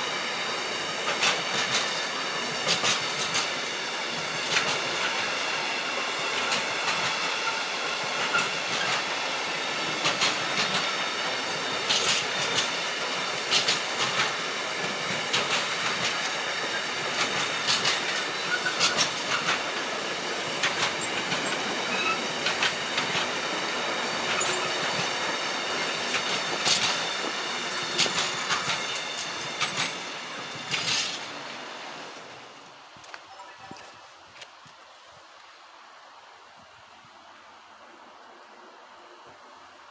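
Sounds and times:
train wheels rumbling on rail: 0:00.0 - 0:37.2
wheels clicking over rail joints: 0:13.5 - 0:19.8, 0:20.6 - 0:23.4.

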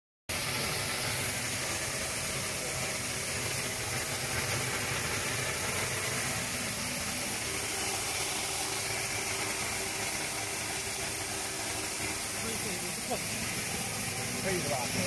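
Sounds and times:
machine hum: 0:00.3 - 0:15.0
seeds hissing down chutes: 0:00.3 - 0:15.0.

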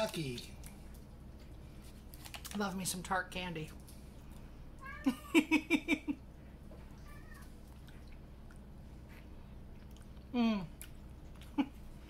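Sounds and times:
woman laughing: 0:05.0 - 0:06.2.

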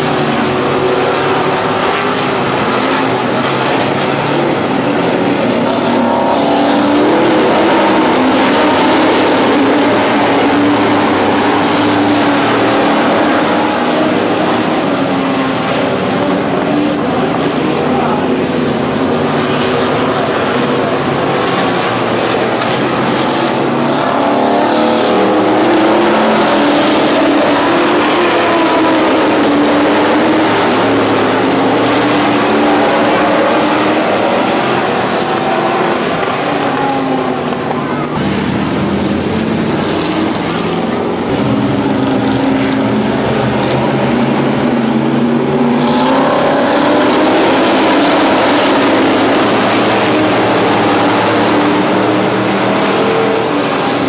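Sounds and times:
race car engines droning: 0:00.0 - 0:54.0.

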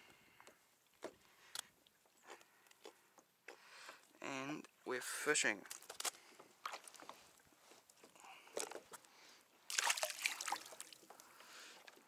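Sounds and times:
water splashing beside kayak: 0:09.7 - 0:11.1.

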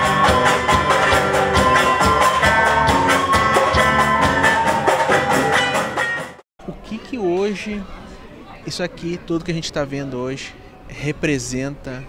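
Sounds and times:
acoustic guitars strumming: 0:00.0 - 0:06.4
recorders playing melody: 0:00.0 - 0:06.4.

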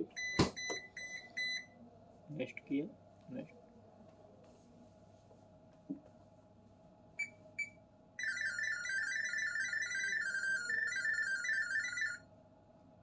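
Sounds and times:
refrigerator short beeps: 0:00.1 - 0:01.7.

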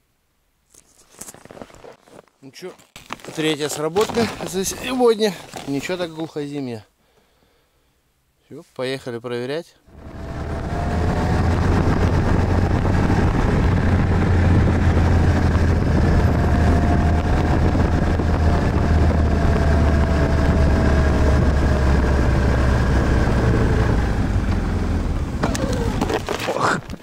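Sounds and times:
snowmobile engine droning: 0:09.9 - 0:26.1.

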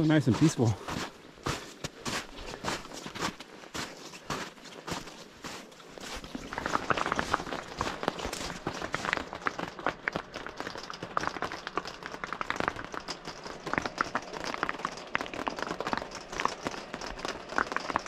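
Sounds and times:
heavy rain on camper roof: 0:06.8 - 0:18.0.

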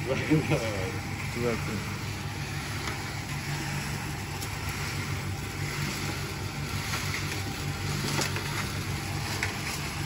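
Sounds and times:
drum roaster mechanical hum: 0:00.0 - 0:10.0
sand hissing: 0:02.2 - 0:10.0.

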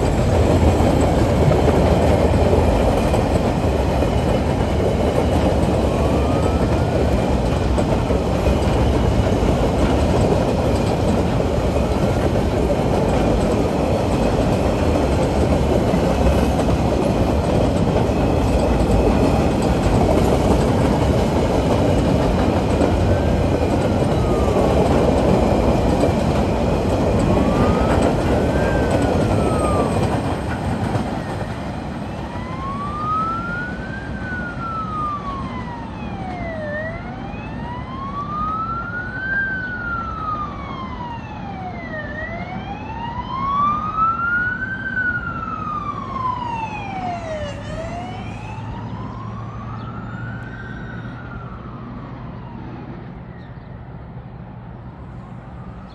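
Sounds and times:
freight train rumbling on rails: 0:00.0 - 0:38.7
siren wailing: 0:03.9 - 0:09.8, 0:20.8 - 0:53.9.

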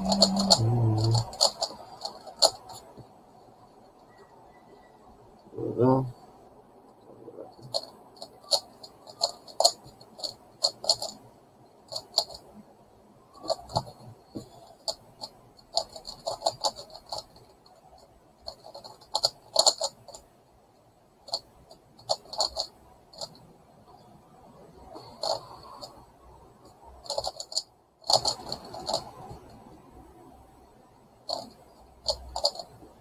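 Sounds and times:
plastic puzzle clicking: 0:00.0 - 0:02.9, 0:07.6 - 0:11.2, 0:27.0 - 0:29.6, 0:31.3 - 0:32.9.

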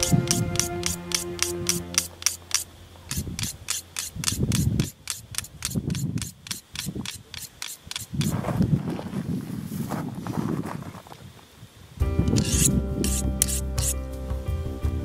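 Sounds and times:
knife scraping through sharpener: 0:00.0 - 0:08.3, 0:12.3 - 0:14.0.

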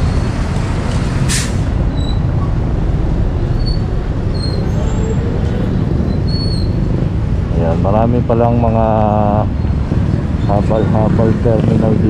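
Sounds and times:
street traffic rumble: 0:00.0 - 0:12.0
short sharp hiss: 0:01.3 - 0:01.7.

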